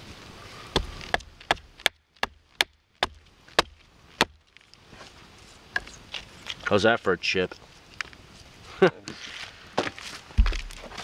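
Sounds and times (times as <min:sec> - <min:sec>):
hatchet chopping wood: 0:00.7 - 0:04.4.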